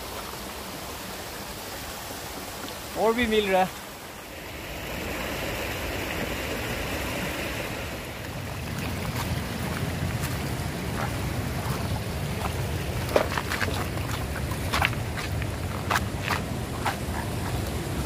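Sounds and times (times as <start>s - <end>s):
rushing river water: 0.0s - 18.0s.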